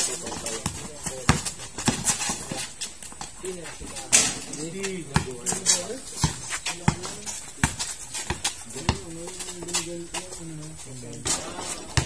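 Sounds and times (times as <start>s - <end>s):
people talking: 0.0s - 12.0s
basketball bouncing on court: 0.2s - 2.4s, 5.1s - 9.9s, 11.2s - 12.0s.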